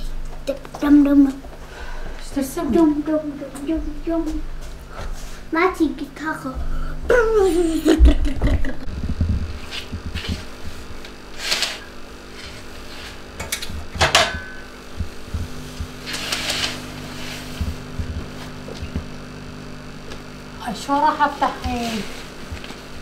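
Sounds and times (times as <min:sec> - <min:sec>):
steady low hum: 0:00.0 - 0:23.0
curtain fabric rustling: 0:09.2 - 0:13.3, 0:15.2 - 0:18.7.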